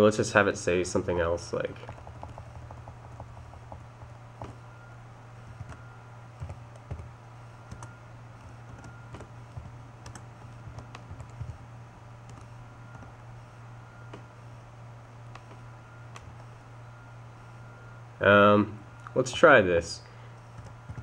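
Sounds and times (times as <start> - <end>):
low steady hum: 0.0 - 21.0
keyboard typing: 1.8 - 4.6, 5.5 - 11.6, 12.2 - 13.1, 20.4 - 21.0.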